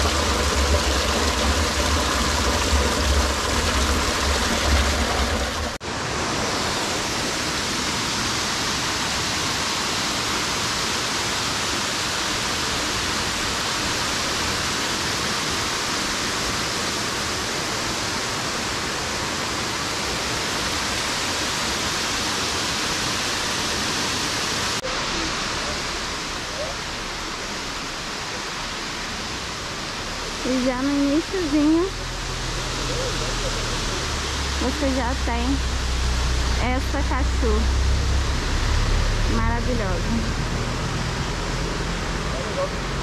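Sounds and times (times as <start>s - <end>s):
water splashing into stone basin: 0.0s - 5.8s
waterfall rushing: 0.0s - 43.0s.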